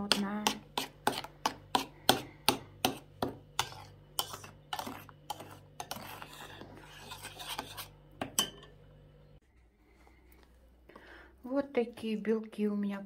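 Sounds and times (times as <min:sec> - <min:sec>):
spoon stirring thick batter: 0:00.0 - 0:08.7
spoon clinking against glass bowl: 0:08.3 - 0:08.8.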